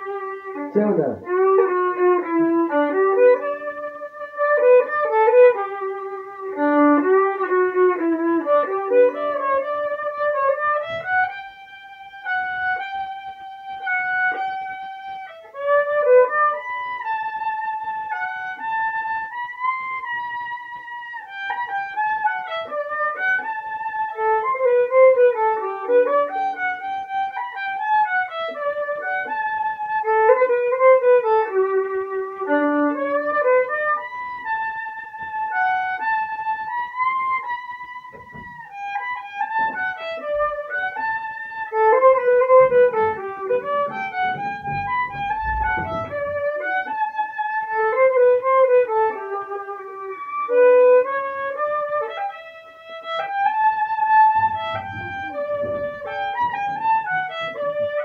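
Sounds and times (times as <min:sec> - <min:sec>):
solo violin melody: 0:00.0 - 0:58.0.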